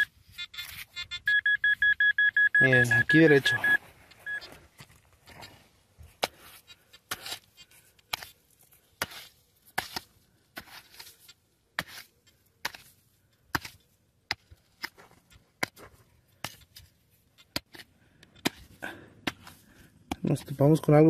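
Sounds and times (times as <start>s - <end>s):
dirt scraping: 0.0s - 1.9s, 2.6s - 21.0s
hand digger striking clay soil: 6.2s - 8.4s, 9.0s - 20.9s.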